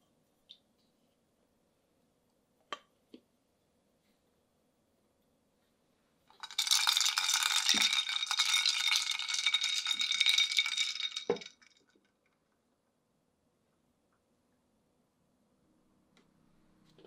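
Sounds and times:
ice cubes clinking in glass: 0:06.4 - 0:11.7.

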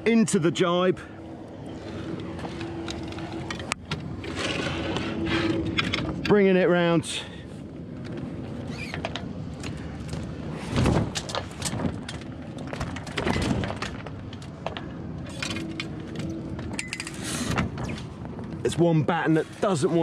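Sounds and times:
sail battens thudding: 0:10.7 - 0:14.4.

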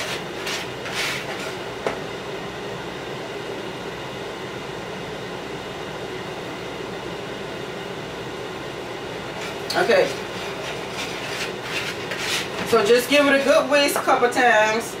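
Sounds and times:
scratchy rustle of flour: 0:00.0 - 0:01.6, 0:09.4 - 0:12.7
steady mechanical hum: 0:00.0 - 0:15.0.

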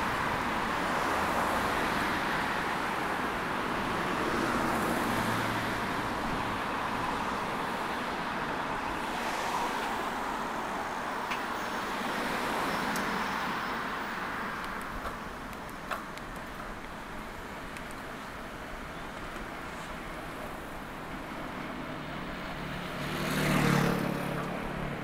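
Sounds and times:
road traffic passing: 0:00.0 - 0:25.0
light clicks: 0:17.7 - 0:18.0.

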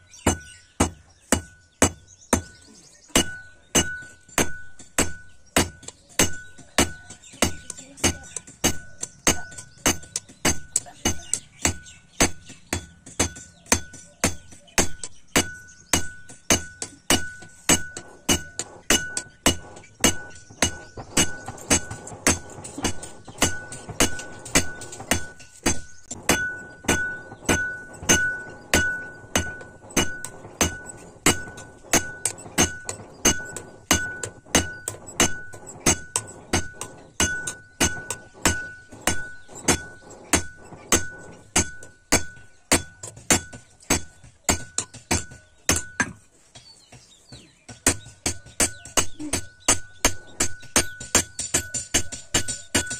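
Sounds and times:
hammer ringing on anvil: 0:00.2 - 0:46.2, 0:47.9 - 0:52.9.

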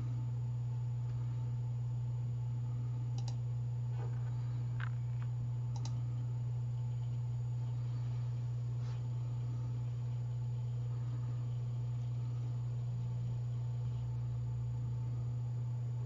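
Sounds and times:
low hum: 0:00.0 - 0:16.0
computer mouse clicks: 0:03.2 - 0:03.4, 0:05.7 - 0:06.0.

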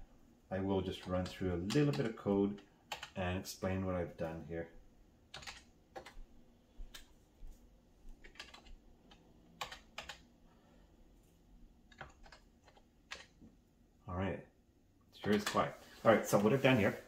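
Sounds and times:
keyboard typing: 0:01.0 - 0:03.2, 0:05.3 - 0:06.2, 0:08.2 - 0:10.3, 0:11.9 - 0:13.5.

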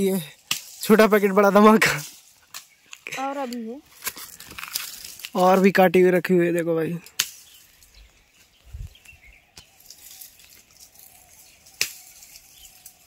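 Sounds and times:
faint bird chirps: 0:07.4 - 0:13.0.

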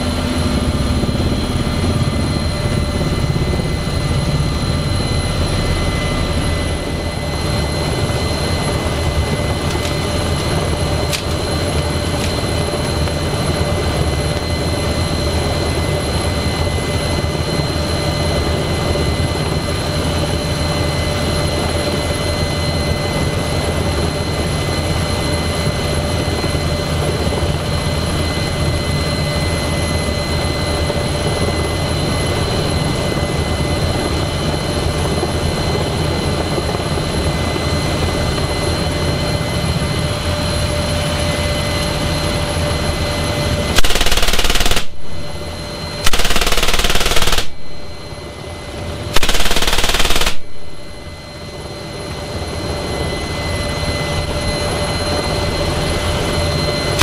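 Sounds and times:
helicopter rotor and turbine whine: 0:00.0 - 0:57.0
heavy machine gun bursts: 0:43.8 - 0:45.0, 0:46.1 - 0:47.6, 0:49.2 - 0:50.5.

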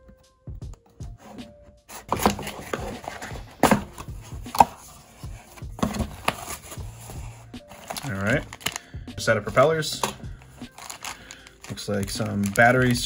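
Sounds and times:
cardboard scraping and tapping: 0:01.2 - 0:08.0
cardboard box knocks: 0:05.7 - 0:06.4.

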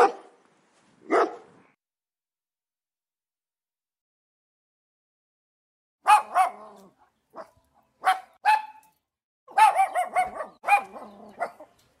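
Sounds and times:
dog barking: 0:00.0 - 0:00.4, 0:01.0 - 0:01.5, 0:06.0 - 0:08.9, 0:09.5 - 0:11.7.

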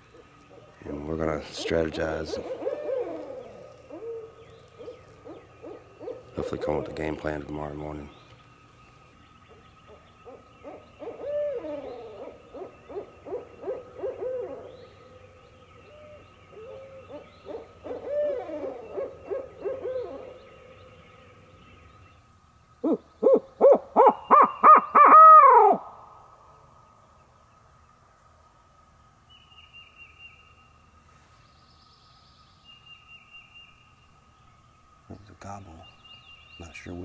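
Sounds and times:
owl locator call hoots: 0:00.1 - 0:08.3, 0:09.5 - 0:21.5, 0:22.8 - 0:26.2
owls caterwauling: 0:00.5 - 0:07.3, 0:09.9 - 0:15.2, 0:15.8 - 0:20.8, 0:22.8 - 0:26.0.

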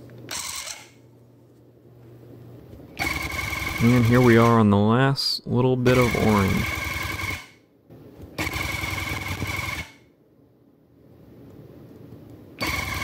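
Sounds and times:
tufting gun rattling and whining: 0:08.4 - 0:10.0, 0:12.6 - 0:13.0.

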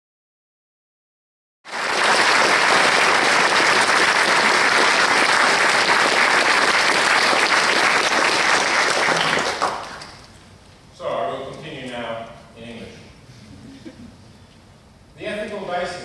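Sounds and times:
audience applauding: 0:01.7 - 0:10.2.

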